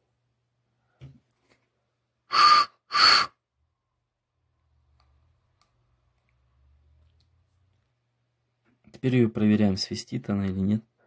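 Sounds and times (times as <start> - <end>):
short puffs of blown air: 2.3 - 3.4.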